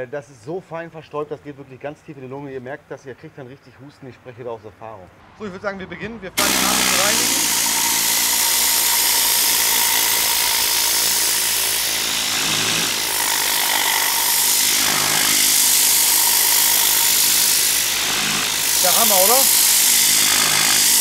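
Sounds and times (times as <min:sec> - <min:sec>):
compressed air hissing: 0:06.4 - 0:21.0.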